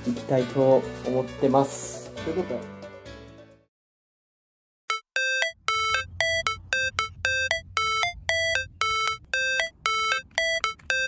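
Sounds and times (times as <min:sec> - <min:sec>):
electronic tune of quick beeps: 0:04.9 - 0:11.0.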